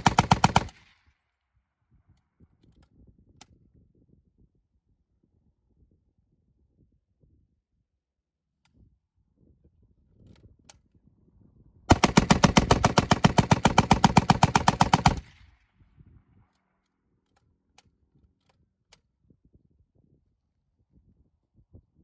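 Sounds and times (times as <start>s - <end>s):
machine gun firing burst: 0.0s - 0.8s, 11.9s - 15.4s.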